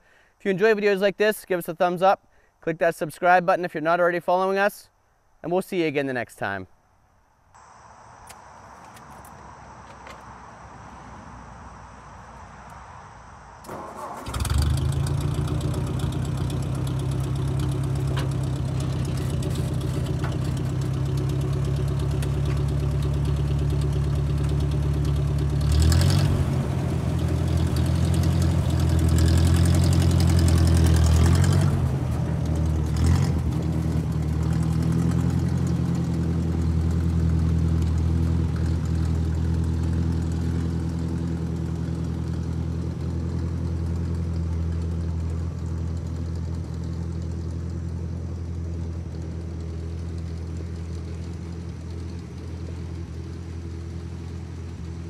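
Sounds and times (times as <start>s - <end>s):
tractor engine running: 13.6s - 55.0s
clunk: 17.9s - 20.9s.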